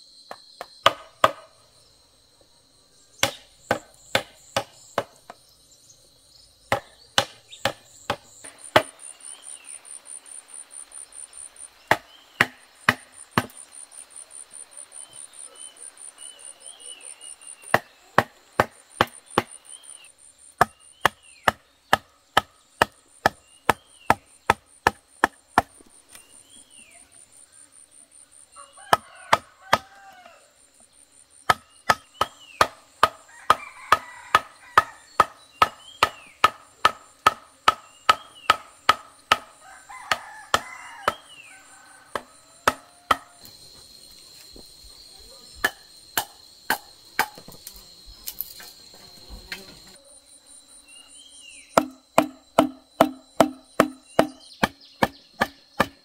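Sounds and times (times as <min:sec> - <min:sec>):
blade chopping bamboo: 0:00.6 - 0:01.5, 0:03.2 - 0:05.2, 0:06.7 - 0:09.0, 0:11.9 - 0:13.6, 0:17.7 - 0:19.6, 0:20.6 - 0:25.9, 0:31.5 - 0:39.5, 0:42.1 - 0:43.4, 0:45.6 - 0:47.7, 0:51.8 - 0:56.0
birds chirping: 0:02.9 - 0:30.3, 0:31.6 - 0:32.9, 0:33.6 - 0:38.9, 0:50.9 - 0:56.0
insect trilling: 0:02.9 - 0:56.0.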